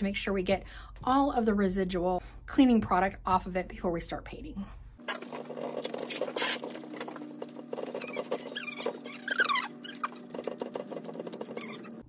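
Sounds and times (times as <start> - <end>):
wet cloth rubbing a table: 6.1 - 12.0
cloth squeaking on glossy surface: 7.7 - 12.0.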